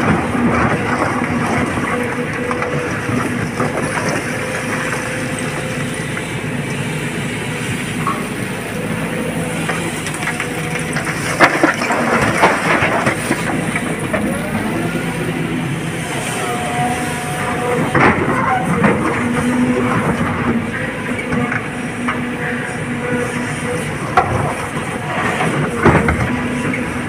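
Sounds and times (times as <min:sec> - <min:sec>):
diesel excavator running: 0:00.0 - 0:27.0.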